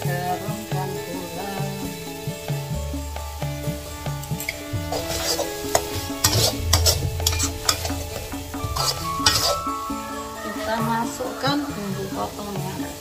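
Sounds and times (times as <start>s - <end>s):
background music: 0.0s - 13.0s
frying sizzle: 0.0s - 13.0s
metal spatula scraping wok: 3.6s - 10.4s.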